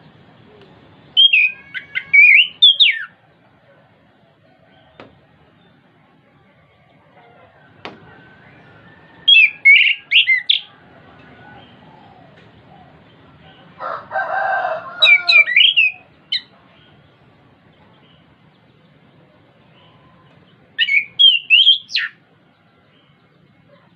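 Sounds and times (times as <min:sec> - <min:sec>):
high whistled bird notes: 0:01.2 - 0:03.2, 0:08.4 - 0:10.7, 0:15.0 - 0:16.5, 0:20.8 - 0:22.2.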